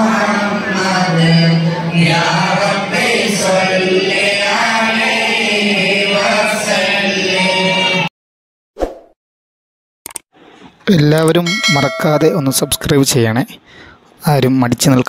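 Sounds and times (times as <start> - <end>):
men chanting in unison: 0.0 - 8.1.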